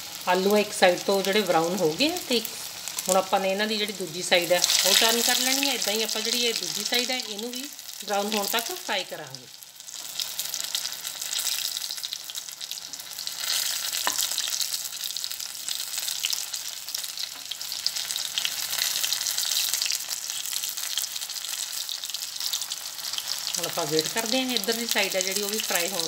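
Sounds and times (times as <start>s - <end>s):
potatoes sizzling in oil: 0.0s - 26.0s.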